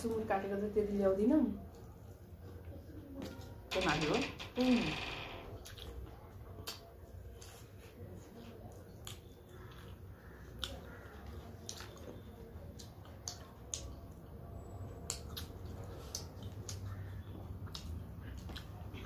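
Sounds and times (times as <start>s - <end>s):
wet chewing and lip smacks: 5.6s - 19.0s.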